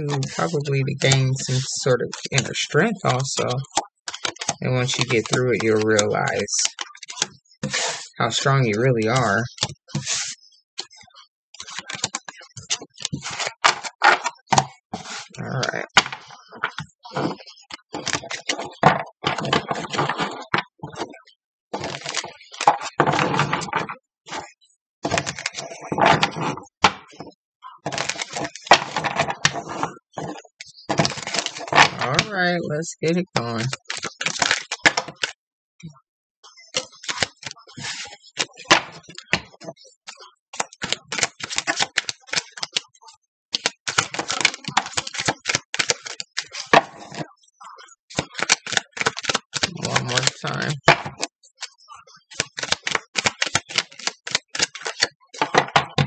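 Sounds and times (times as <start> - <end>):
cards being shuffled: 0.0 - 10.4, 33.3 - 35.3, 40.6 - 42.9, 43.6 - 47.3, 48.1 - 51.3, 52.3 - 56.0.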